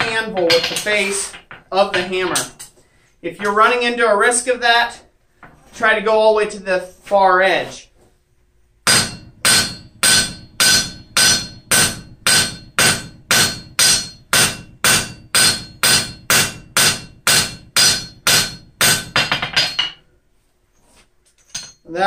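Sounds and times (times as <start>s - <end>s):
hammer striking steel on anvil: 8.9s - 20.0s.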